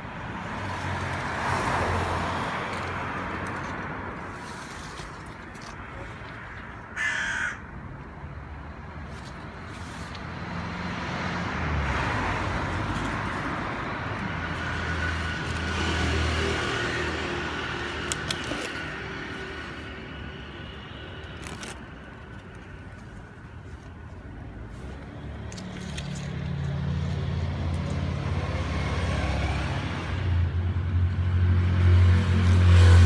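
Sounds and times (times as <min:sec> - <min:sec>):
vehicle passing with low rumble: 0:08.2 - 0:33.0.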